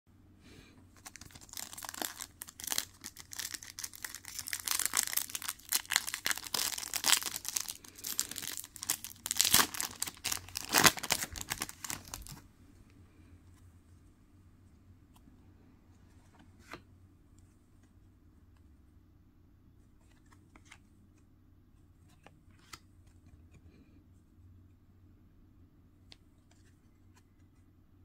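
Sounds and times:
foil wrapper crinkling and tearing: 0:01.0 - 0:12.4.

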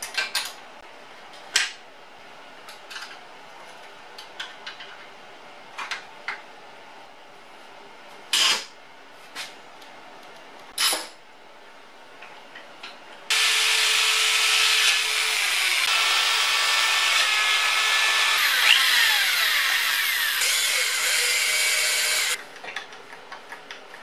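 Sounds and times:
electric drill boring into metal: 0:13.3 - 0:22.4.

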